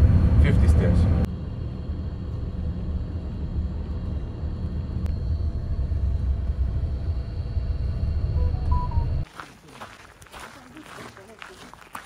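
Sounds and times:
minibus engine and road noise: 0.0 - 9.3.

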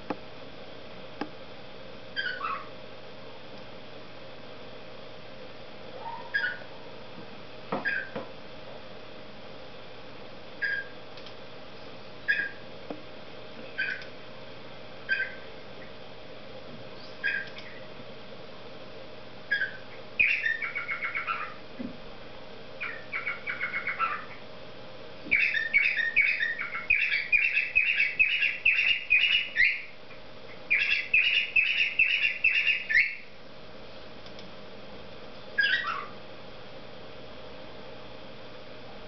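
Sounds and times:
cockatiel chirping and warbling: 2.2 - 2.7, 6.0 - 6.7, 7.8 - 8.1, 10.6 - 10.9, 12.3 - 12.6, 13.8 - 14.0, 15.1 - 15.4, 17.2 - 17.8, 19.5 - 21.6, 22.8 - 24.4, 25.3 - 29.9, 30.7 - 33.2, 35.6 - 36.2.

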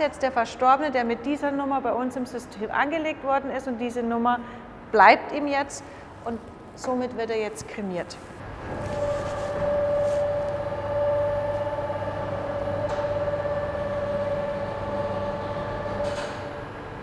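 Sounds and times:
mechanical lift humming and whining: 6.1 - 17.0.

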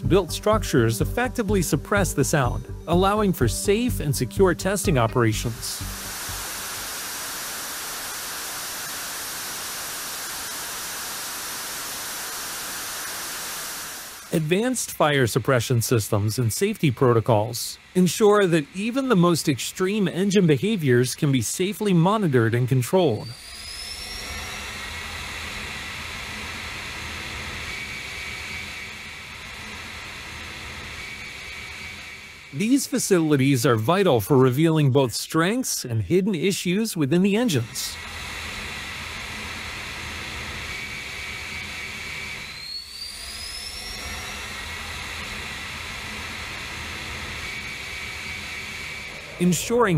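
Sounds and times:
jet engine running: 0.0 - 33.8, 37.4 - 49.9.

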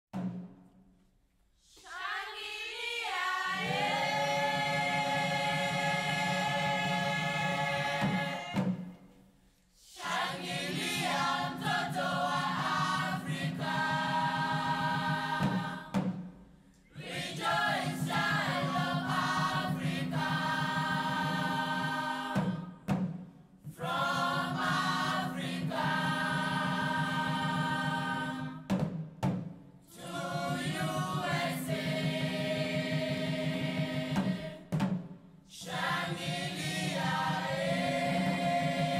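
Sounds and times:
choir singing: 1.6 - 9.1, 9.8 - 16.1, 16.9 - 22.9, 23.7 - 28.8, 29.9 - 34.8, 35.5 - 38.9.

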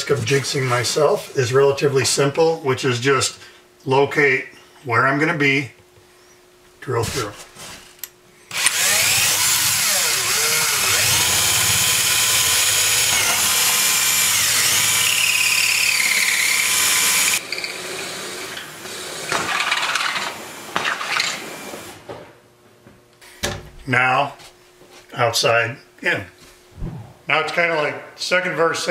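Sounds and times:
power drill whining: 8.5 - 20.4.

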